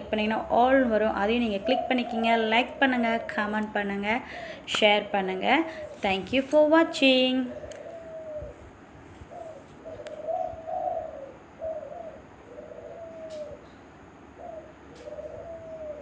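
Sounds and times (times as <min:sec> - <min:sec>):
pigeon cooing: 0:00.0 - 0:04.6, 0:05.5 - 0:16.0.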